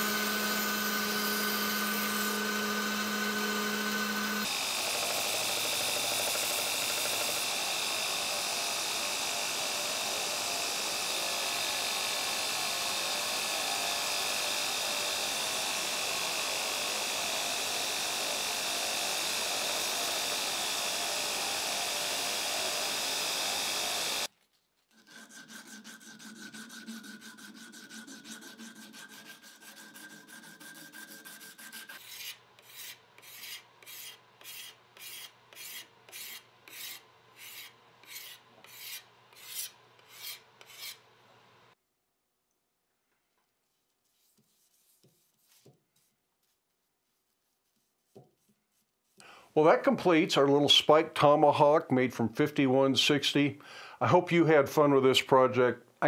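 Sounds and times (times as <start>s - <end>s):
belt grinder running: 0.0s - 24.3s
hand rubbing strokes: 43.5s - 49.2s.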